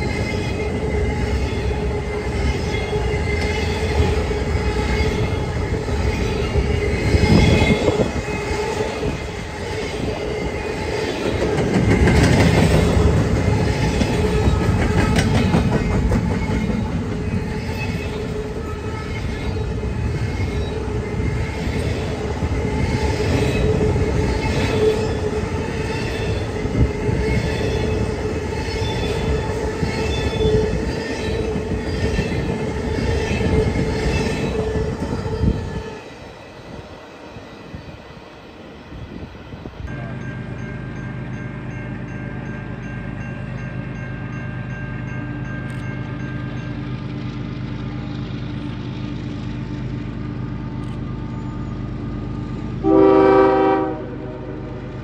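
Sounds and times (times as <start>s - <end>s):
wheels squealing on rail: 0.0s - 40.1s, 50.9s - 54.0s
freight train cars rolling: 0.0s - 55.0s.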